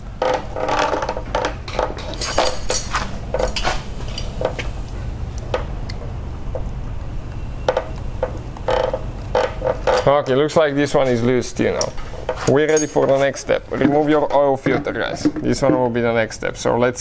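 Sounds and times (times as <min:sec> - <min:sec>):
steady low hum: 0:00.0 - 0:17.0
tools clinking on metal clamp: 0:12.7 - 0:13.2.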